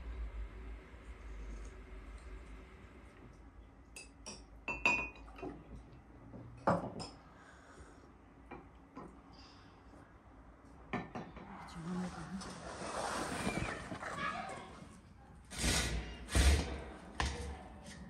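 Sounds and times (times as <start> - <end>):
glasses clinking on saucers: 4.0 - 5.5.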